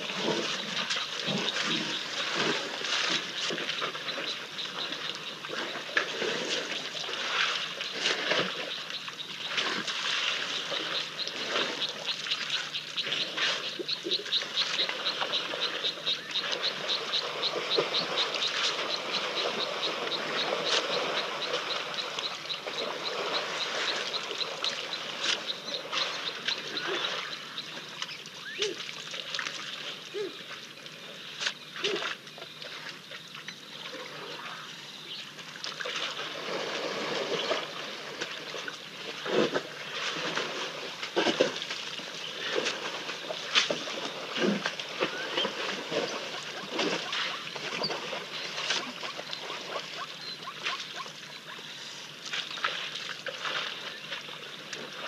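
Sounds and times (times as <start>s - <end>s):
water splashing and trickling: 0.0s - 55.0s.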